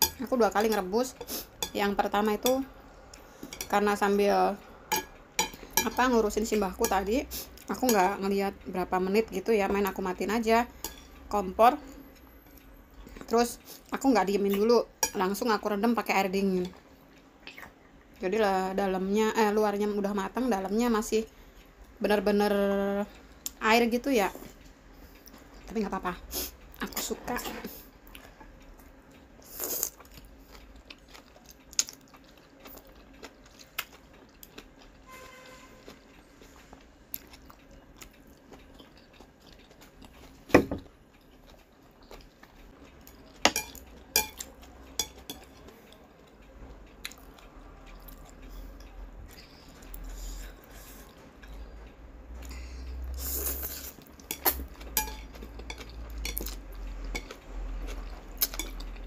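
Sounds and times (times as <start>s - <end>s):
person chewing noodles: 29.4s - 59.0s.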